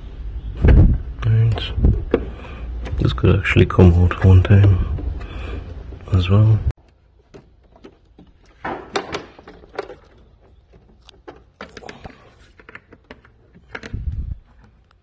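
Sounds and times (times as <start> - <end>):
hands working at plastic trim: 6.8 - 15.0.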